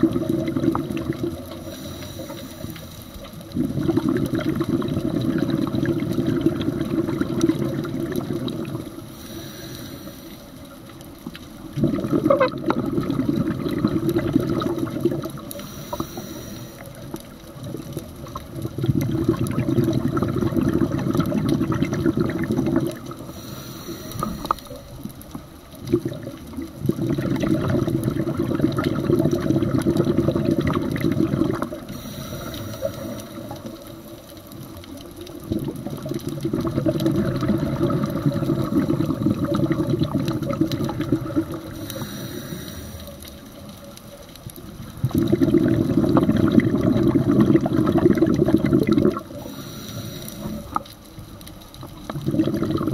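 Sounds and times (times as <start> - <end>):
exhaled bubbles rushing: 0.0 - 9.3, 11.2 - 16.0, 16.8 - 42.2, 43.1 - 52.9
hissing regulator inhale: 1.5 - 3.3, 9.0 - 10.7, 15.5 - 17.1, 23.2 - 24.9, 31.9 - 33.7, 41.7 - 43.5, 49.3 - 50.8.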